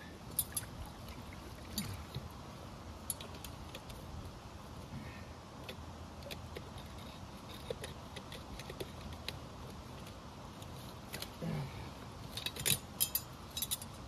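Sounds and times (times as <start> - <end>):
metal trap and chain clinking: 0.3 - 0.7, 12.4 - 14.0.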